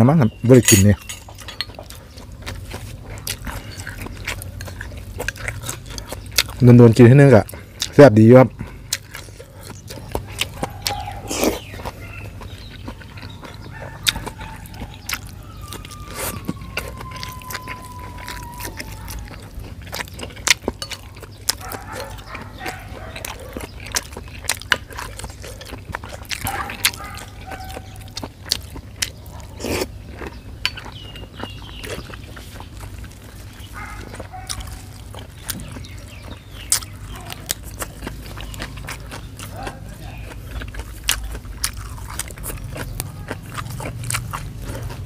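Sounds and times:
chewing and mouth noises: 0.0 - 45.0
spoon clicking and scraping bowl: 0.6 - 1.9.

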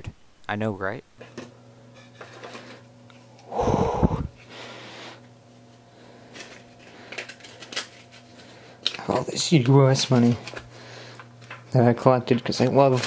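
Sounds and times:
soft breath: 2.2 - 5.3
person snorting: 3.4 - 5.2.

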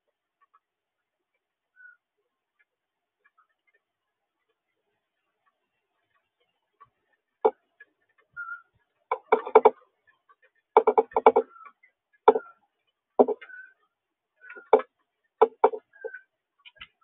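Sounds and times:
bird beak tapping on seed tray: 9.1 - 9.8, 10.8 - 11.5, 13.2 - 13.5, 14.5 - 16.9.

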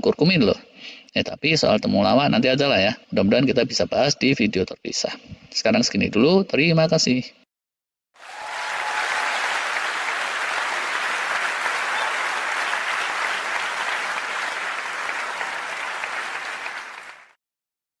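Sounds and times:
crowd clapping: 8.2 - 17.4.

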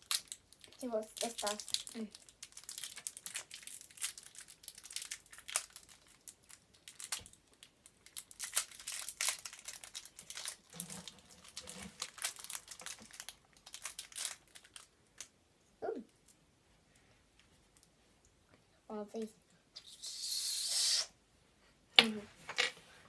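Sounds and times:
plastic wrapper crinkling: 0.0 - 15.3.

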